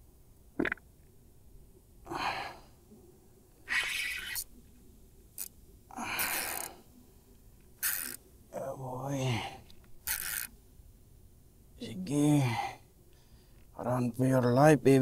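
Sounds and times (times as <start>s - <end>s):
man breathing hard: 2.1s - 2.7s.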